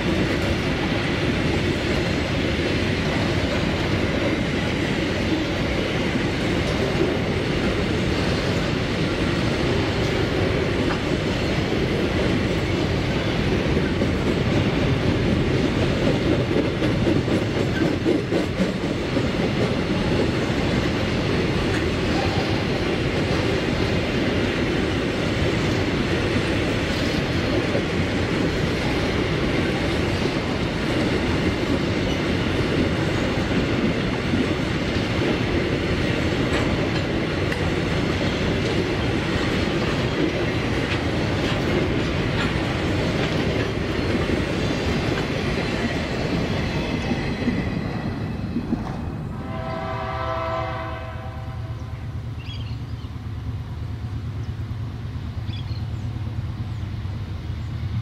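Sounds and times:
steel wheels clattering on rails: 0:00.0 - 0:49.2
freight train rumbling past: 0:00.0 - 0:58.0.

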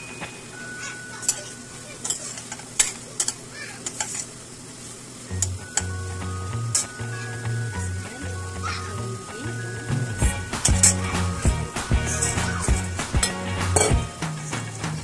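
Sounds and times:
food sizzling in a pan: 0:00.0 - 0:15.0
metal spoon scraping a pan: 0:02.0 - 0:04.4.

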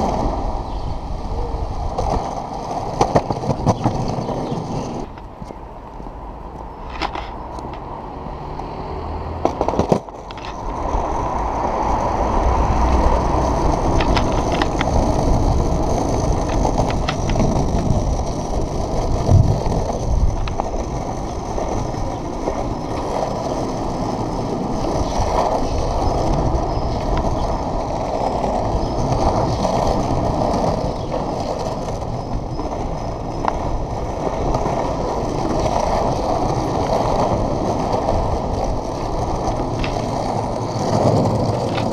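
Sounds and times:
wheels clicking over joints: 0:00.0 - 0:05.6, 0:09.4 - 0:41.9
skateboard wheels rolling on bricks: 0:00.0 - 0:41.9
skateboard knocking down: 0:09.4 - 0:10.8, 0:13.7 - 0:23.3, 0:26.3 - 0:41.9.

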